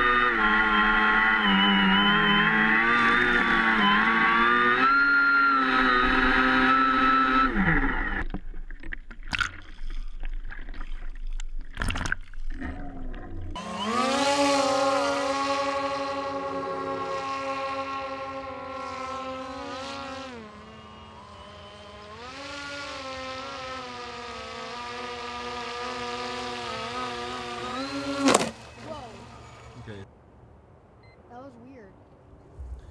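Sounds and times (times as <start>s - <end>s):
electric motors and propellers whining: 0.0s - 8.3s, 12.6s - 30.0s.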